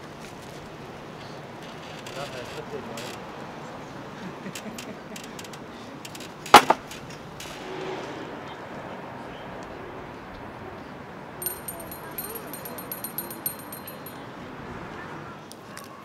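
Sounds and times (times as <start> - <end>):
sharp knocks: 6.2 - 7.2.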